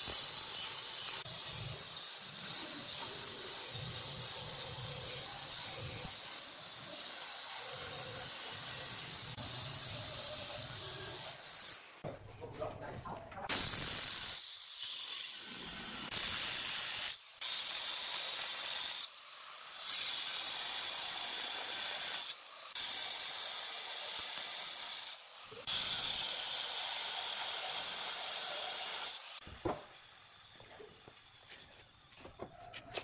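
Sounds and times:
angle grinder cutting stone: 0:00.0 - 0:12.0, 0:13.7 - 0:29.4.

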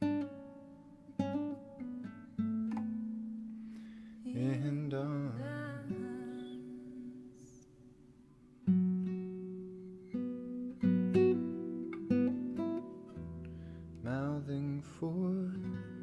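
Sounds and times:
plucked acoustic guitar: 0:00.0 - 0:16.0
person singing wavering phrase: 0:04.3 - 0:07.6.

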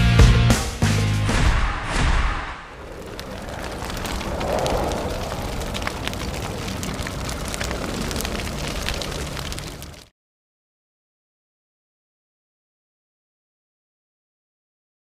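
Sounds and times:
fire crackling: 0:01.3 - 0:10.1.

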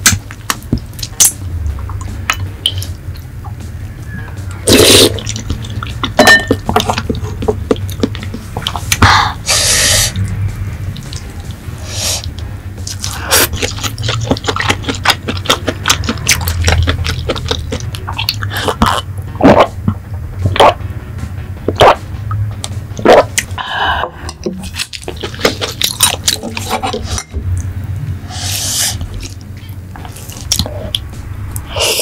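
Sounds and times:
wet chewing: 0:04.7 - 0:09.0, 0:10.9 - 0:11.6, 0:12.2 - 0:19.8, 0:24.3 - 0:27.7, 0:28.4 - 0:31.1
lip smacks and mouth clicks: 0:07.7 - 0:09.0, 0:10.2 - 0:11.6
gulping: 0:13.1 - 0:19.8, 0:24.6 - 0:27.3.

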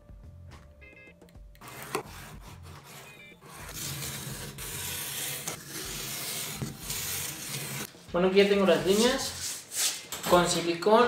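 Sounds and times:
knife cutting cardboard: 0:01.6 - 0:07.9.

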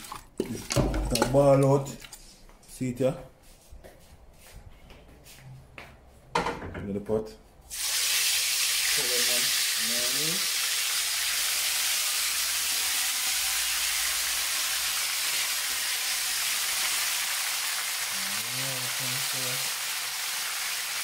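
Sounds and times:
chicken sizzling in hot oil: 0:07.7 - 0:21.0.

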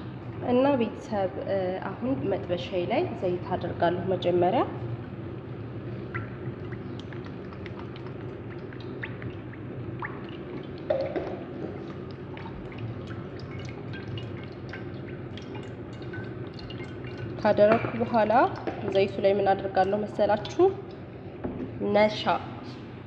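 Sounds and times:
oil dripping and splashing: 0:05.8 - 0:21.3
oil pouring into a pan: 0:06.3 - 0:18.9.

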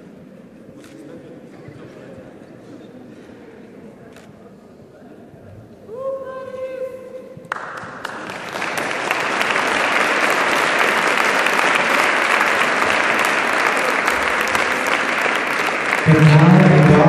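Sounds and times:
audience applauding: 0:07.5 - 0:17.0.

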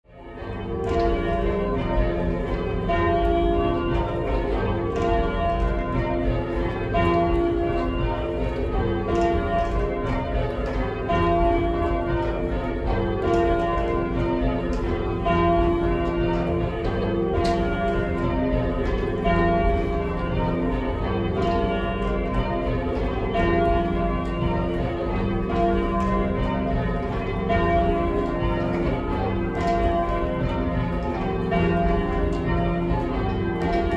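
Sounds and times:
church bells ringing: 0:00.1 - 0:33.9.

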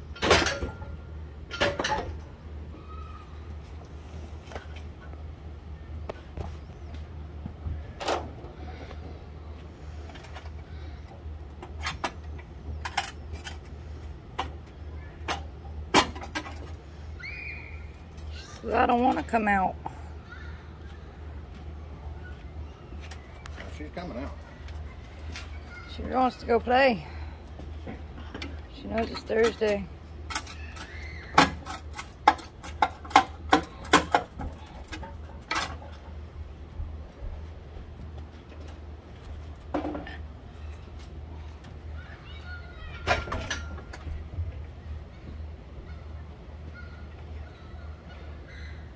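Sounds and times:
sharp metal clanks and knocks: 0:00.0 - 0:02.3
steady low hum: 0:00.0 - 0:48.9.

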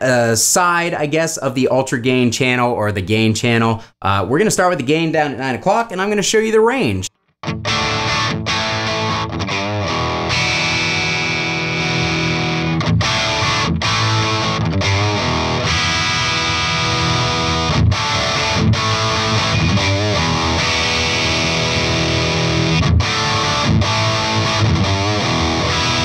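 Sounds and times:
distorted electric guitar chords: 0:07.4 - 0:26.0.

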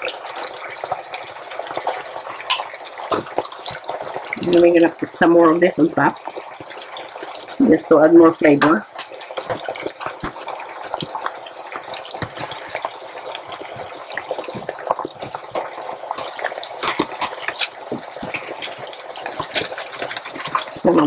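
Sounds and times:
wooden spoon scraping plastic tub: 0:16.2 - 0:21.0.

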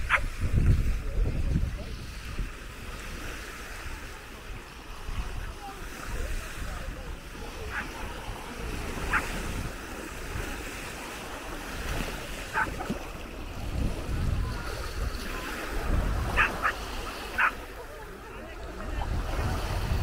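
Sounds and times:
small waves washing on sand: 0:00.0 - 0:20.0
wind buffeting microphone: 0:00.0 - 0:20.0.

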